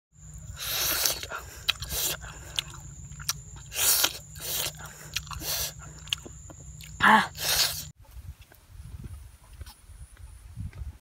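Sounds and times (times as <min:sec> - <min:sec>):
wet chewing mouth noise: 0:00.3 - 0:07.9.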